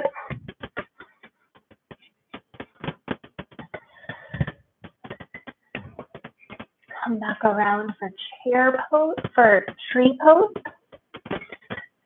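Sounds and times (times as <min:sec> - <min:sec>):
clicks and taps: 0:00.0 - 0:07.0, 0:10.5 - 0:12.0.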